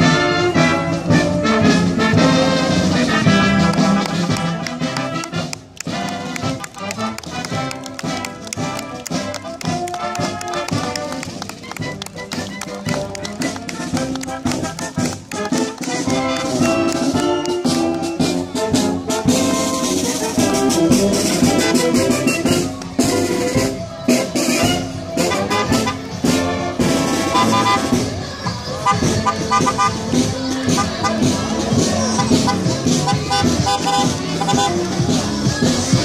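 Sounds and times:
brass marching band playing: 0.0s - 36.0s
steady drum beat: 1.0s - 36.0s.

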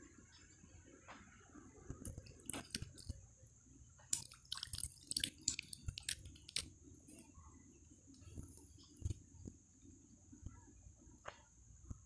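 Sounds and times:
person chewing food: 2.0s - 3.2s, 4.0s - 7.4s, 8.1s - 9.2s.

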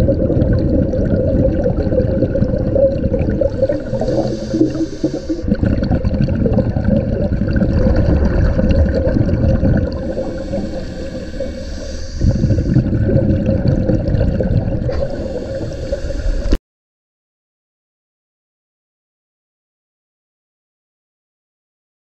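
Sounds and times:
underwater bubbles gurgling: 0.0s - 16.6s
steady hum: 1.5s - 16.6s.

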